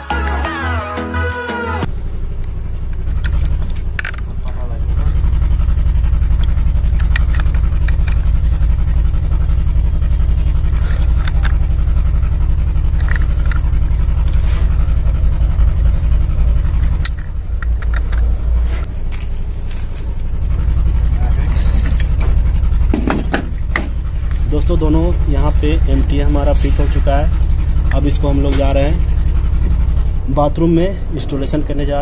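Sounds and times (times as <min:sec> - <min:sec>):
low machine hum: 0:01.8 - 0:32.0
pipe wrench clicks and scrapes: 0:06.3 - 0:09.5, 0:10.1 - 0:14.8, 0:15.8 - 0:18.4, 0:21.4 - 0:24.4.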